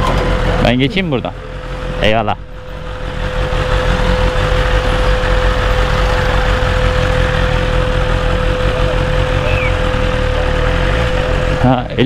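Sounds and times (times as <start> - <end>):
motorcycle engine at low revs: 0.0 - 12.0
steady one-note whine: 0.0 - 12.0.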